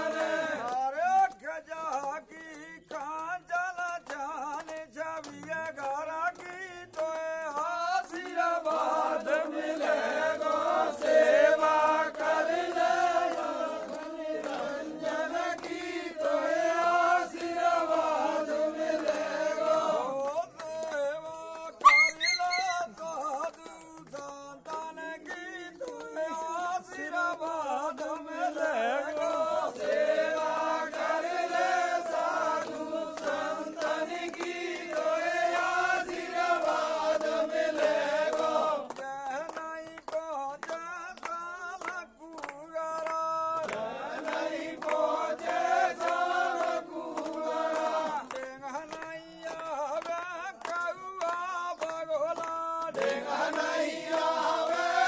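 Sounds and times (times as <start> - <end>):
men chanting together: 0.0 - 3.0, 6.4 - 21.8, 24.2 - 39.2, 43.0 - 50.2, 51.8 - 55.0
hands clapping: 0.0 - 55.0.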